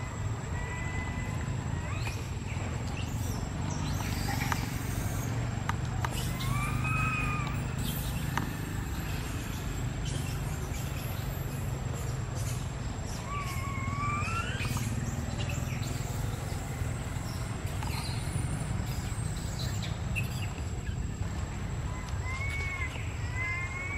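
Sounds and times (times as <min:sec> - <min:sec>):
whistle-like animal calls: 0:06.1 - 0:07.9.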